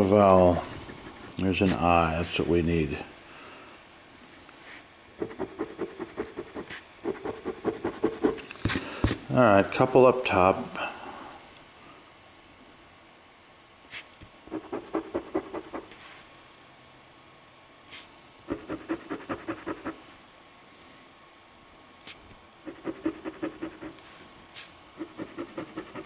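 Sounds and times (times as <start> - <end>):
coin scratching a ticket: 0.0 - 1.8, 22.7 - 24.0, 25.0 - 26.0.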